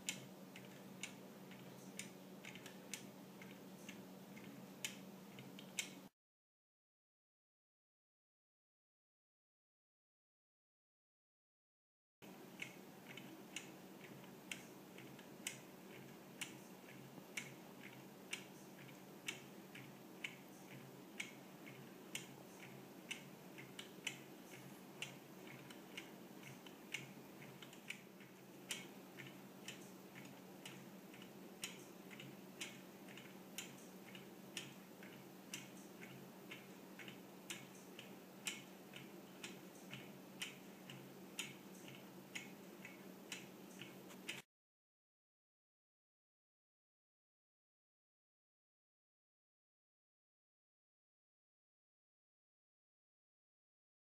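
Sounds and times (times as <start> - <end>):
clock ticking faintly: 0.0 - 6.1, 12.2 - 44.4
steady low hum: 0.0 - 6.1, 12.2 - 44.4.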